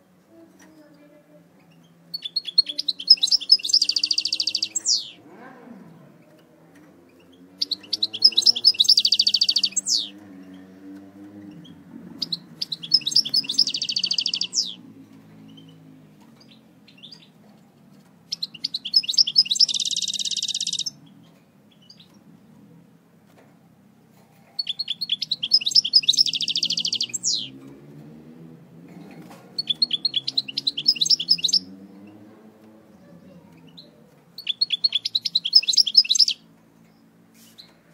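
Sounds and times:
goldfinch singing high twittering: 1.6 - 5.2, 7.2 - 10.2, 11.6 - 14.8, 18.3 - 21.0, 24.6 - 27.6, 29.6 - 31.8, 33.7 - 36.4.

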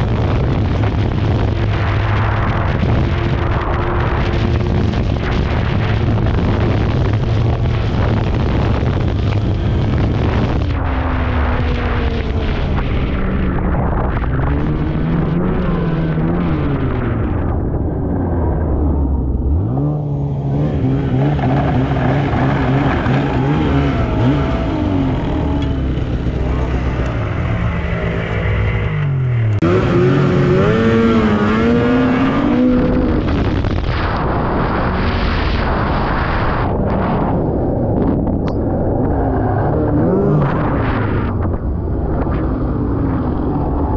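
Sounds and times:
snowmobile engine revving: 18.5 - 37.2, 39.0 - 41.4.

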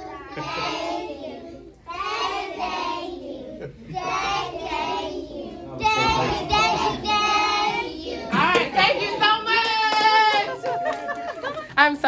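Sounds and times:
children singing together: 0.0 - 8.6.

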